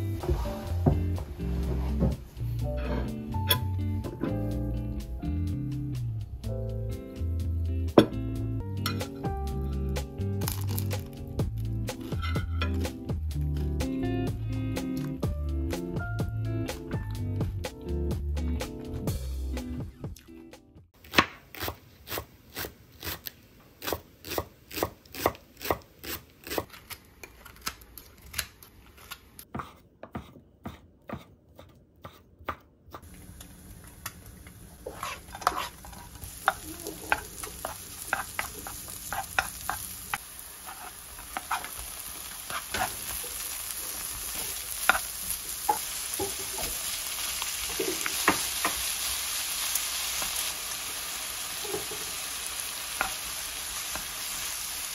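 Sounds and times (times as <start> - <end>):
oil sizzling in wok: 33.0 - 54.9
spatula clicking and scraping: 34.8 - 43.2.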